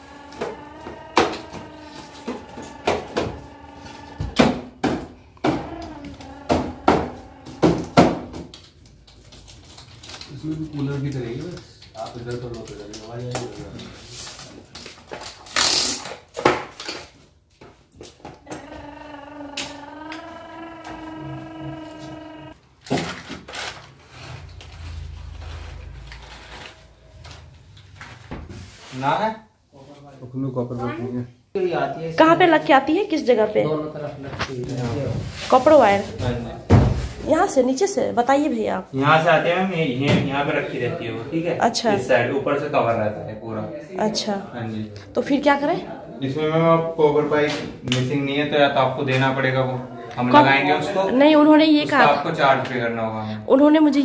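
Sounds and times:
low rumble: 0:24.4 - 0:28.2.

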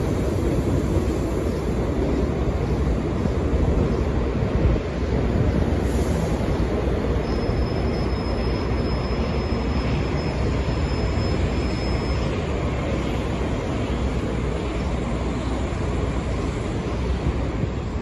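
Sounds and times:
subway train rumbling: 0:00.0 - 0:18.0.

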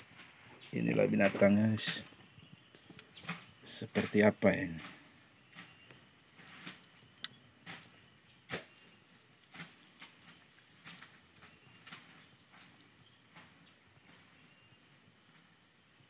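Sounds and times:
faint insect buzzing: 0:00.0 - 0:16.0.

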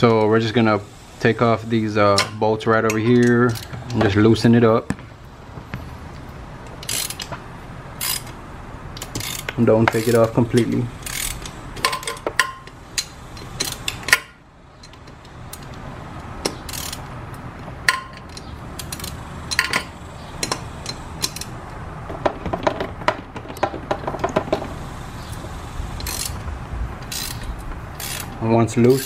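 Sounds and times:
socket ratchet clicking: 0:06.7 - 0:07.4, 0:08.0 - 0:17.1, 0:17.9 - 0:21.6, 0:23.5 - 0:29.0.

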